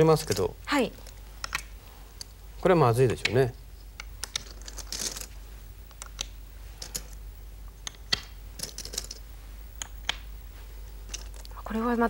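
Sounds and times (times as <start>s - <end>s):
stones clicking on board: 0.2s - 2.3s, 3.0s - 5.3s, 5.9s - 7.2s, 7.8s - 9.2s, 9.8s - 10.3s.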